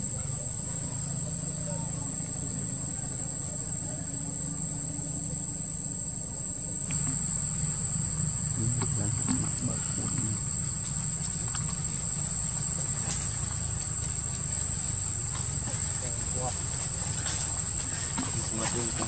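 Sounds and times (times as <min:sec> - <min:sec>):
insect chorus drone: 0:00.0 - 0:19.0.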